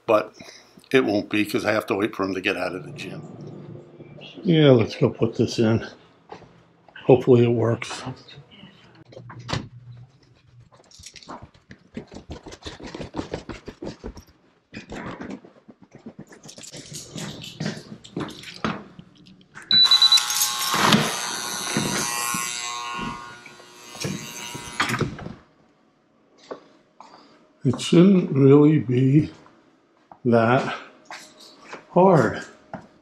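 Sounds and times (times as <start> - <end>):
footsteps going down stairs: 9.1 - 19.0
electronic beep: 19.7 - 20.4.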